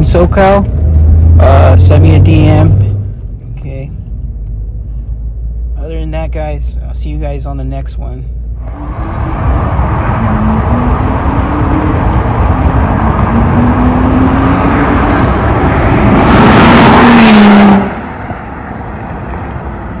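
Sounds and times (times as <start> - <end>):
car accelerating past: 8.6 - 20.0.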